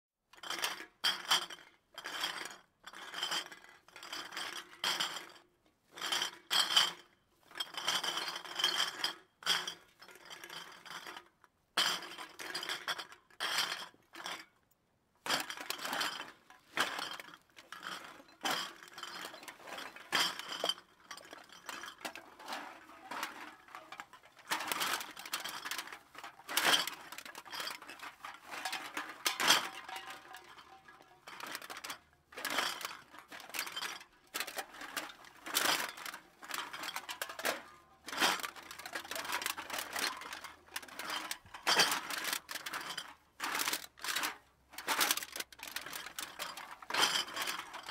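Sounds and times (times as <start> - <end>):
glass bottles clinking: 15.3 - 47.9.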